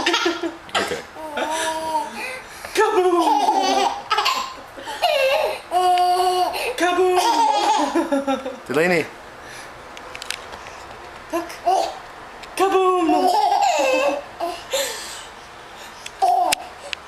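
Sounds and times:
baby laughing: 0.0 - 2.2, 3.1 - 8.1, 11.4 - 12.0, 13.1 - 14.9, 16.2 - 16.7.

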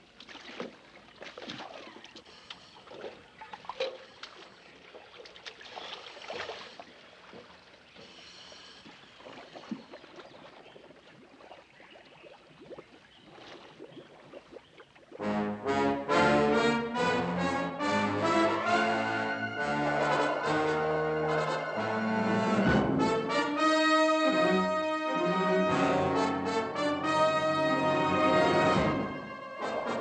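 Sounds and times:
water splashing and lapping: 0.0 - 15.4.

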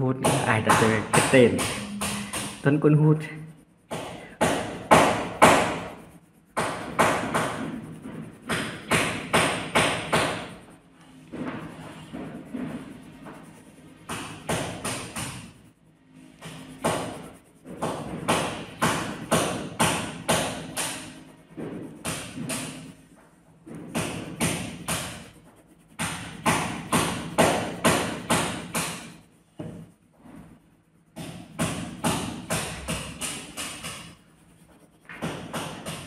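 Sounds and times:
sharp taps: 3.9 - 6.0, 6.6 - 10.5.

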